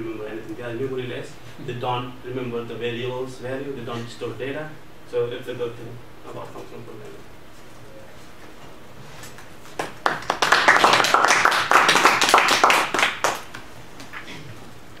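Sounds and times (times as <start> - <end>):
audience applauding: 9.6 - 13.7.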